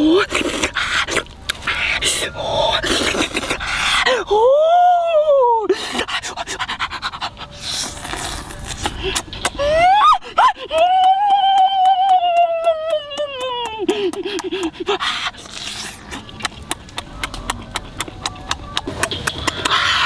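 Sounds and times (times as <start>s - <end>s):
clicks and smacks of eating: 0.3s - 2.0s, 10.7s - 20.0s.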